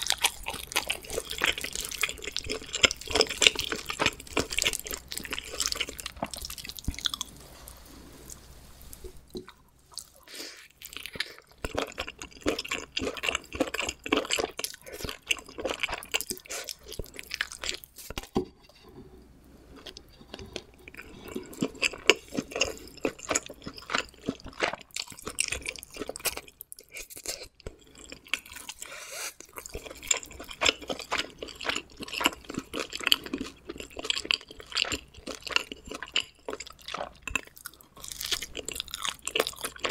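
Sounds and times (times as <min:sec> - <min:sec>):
chewing crunchy pizza: 0:00.0 - 0:07.4, 0:09.3 - 0:18.3, 0:19.8 - 0:39.9.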